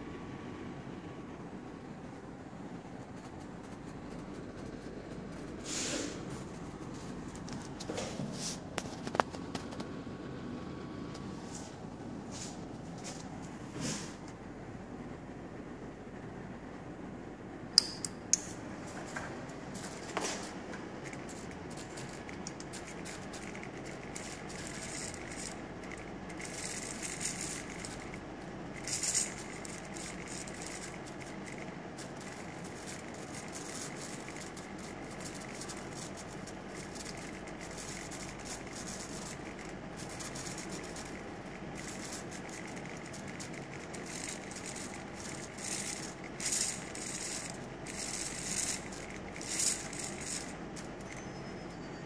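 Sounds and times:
steady low hiss: 0.0 - 51.2
servo motors whirring: 19.8 - 51.3.

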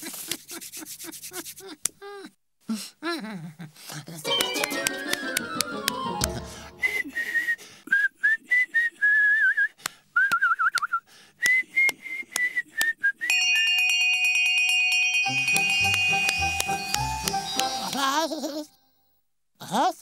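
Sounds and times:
music: 4.2 - 7.2, 15.2 - 18.3
person whistling a tune: 4.4 - 13.4, 15.3 - 18.3
steady high ringing tone: 13.3 - 18.3.

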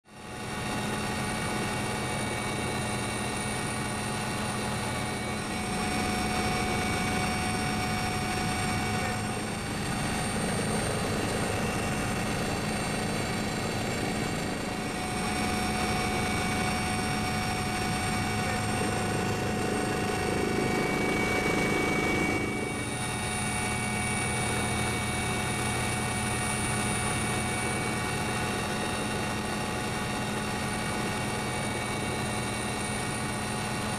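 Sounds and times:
helicopter rotor and turbine drone: 0.1 - 33.9
high whining tones: 12.9 - 29.7.

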